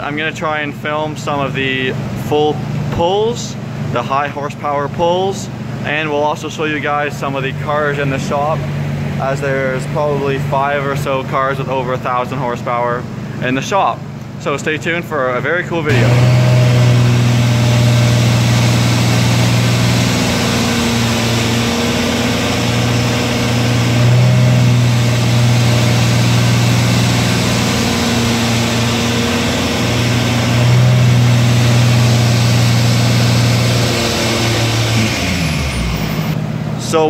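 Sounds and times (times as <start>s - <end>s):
car engine running on a dyno: 5.4s - 13.4s, 15.9s - 37.0s.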